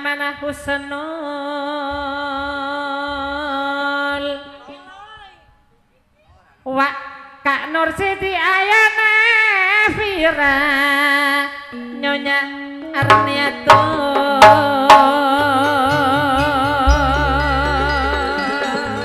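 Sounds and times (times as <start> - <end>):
sharp drum strokes: 13.0 - 19.0
wavering melody line: 13.0 - 19.0.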